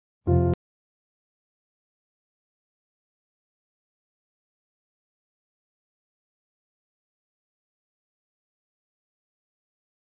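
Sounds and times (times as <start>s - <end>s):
brief musical tone: 0.3s - 0.6s.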